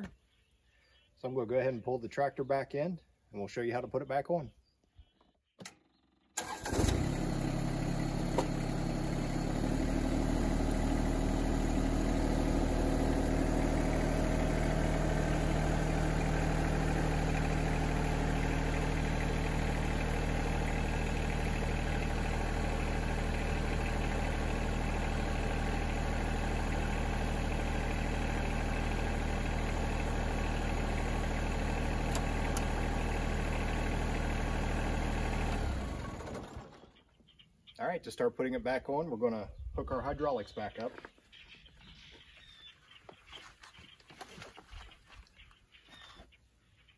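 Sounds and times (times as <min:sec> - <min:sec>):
tractor diesel engine revving: 0:06.4 - 0:37.0.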